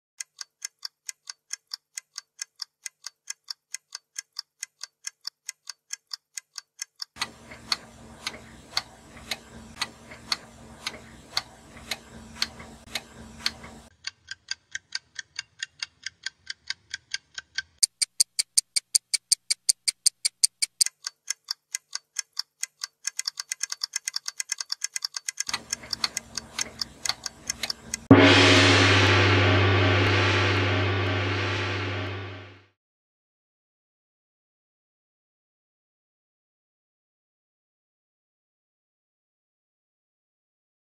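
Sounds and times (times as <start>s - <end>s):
wall clock ticking: 0.2s - 28.1s
low hum: 7.3s - 13.9s, 25.5s - 32.6s
deep gong-like chime: 28.1s - 32.6s.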